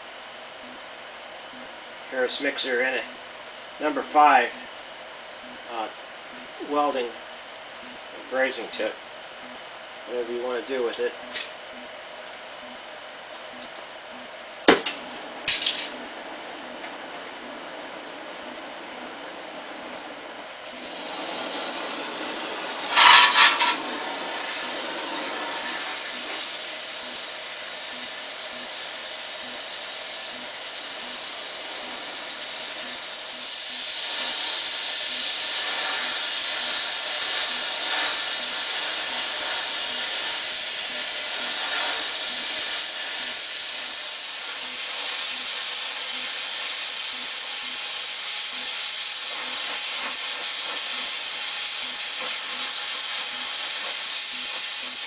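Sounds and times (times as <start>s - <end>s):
torch flame hissing: 14.6s - 55.0s.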